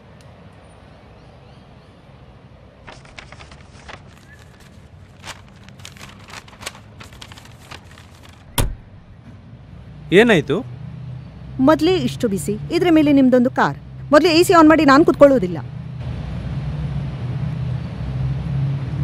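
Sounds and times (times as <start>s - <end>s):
low steady hum: 2.0s - 9.9s
hand thumping car window: 8.5s - 9.1s.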